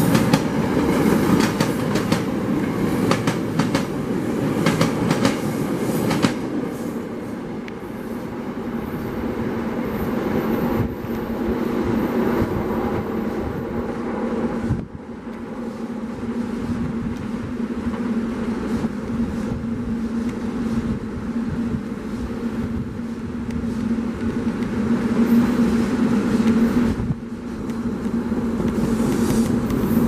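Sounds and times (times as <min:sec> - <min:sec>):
train wheels clacking over rail joints: 0:00.0 - 0:03.9, 0:04.6 - 0:06.5
train rumble and hum: 0:00.0 - 0:30.0.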